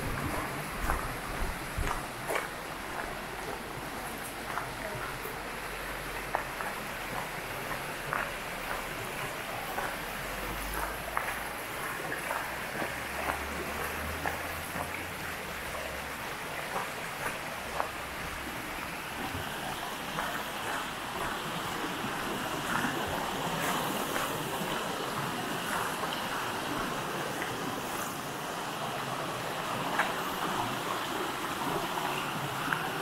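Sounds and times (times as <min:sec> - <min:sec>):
stream babbling: 0:00.0 - 0:33.0
footsteps crunching on gravel: 0:00.1 - 0:03.7.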